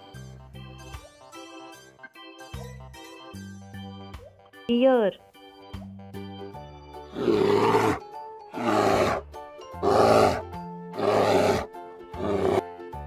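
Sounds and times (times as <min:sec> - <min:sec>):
background music: 0:00.0 - 0:13.0
bear growling: 0:07.1 - 0:12.7.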